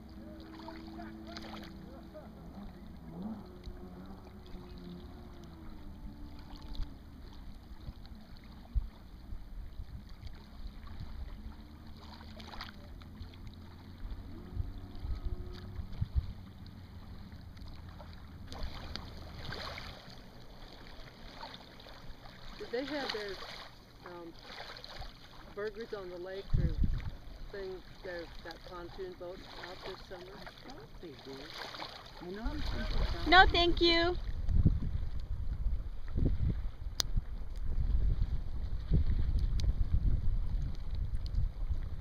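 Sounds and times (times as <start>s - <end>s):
low rumble: 0.0s - 22.6s, 32.6s - 42.0s
water lapping against hull: 0.0s - 42.0s.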